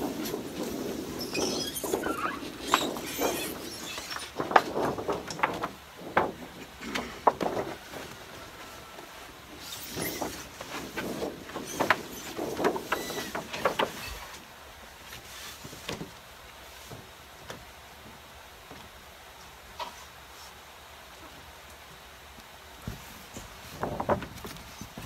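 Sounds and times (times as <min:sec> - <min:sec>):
plastic mat crinkling and flapping: 0:00.0 - 0:14.5.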